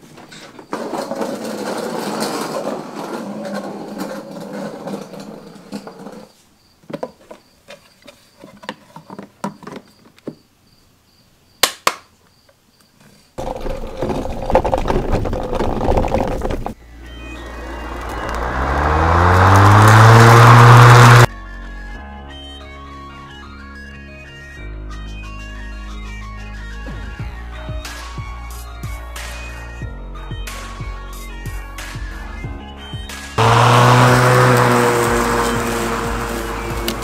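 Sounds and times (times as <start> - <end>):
lawn mower steady noise: 16.8 - 21.3, 33.4 - 37.0.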